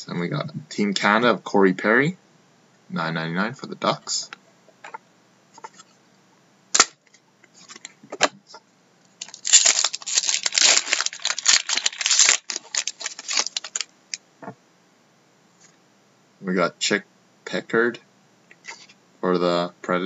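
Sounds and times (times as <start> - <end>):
foil wrapper tearing and crumpling: 9.2 - 13.9.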